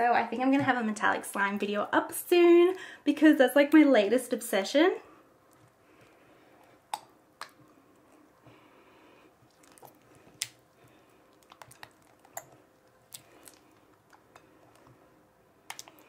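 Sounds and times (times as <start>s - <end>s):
slime clicking and squelching: 9.5s - 15.0s, 15.6s - 16.0s.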